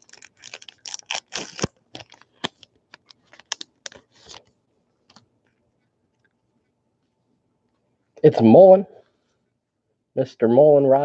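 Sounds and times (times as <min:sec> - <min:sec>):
wrapper torn and crinkled: 0:00.0 - 0:04.4.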